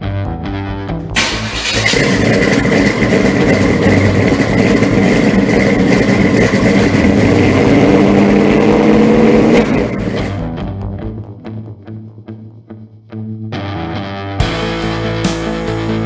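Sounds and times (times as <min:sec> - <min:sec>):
car engine running: 0:01.1 - 0:10.6.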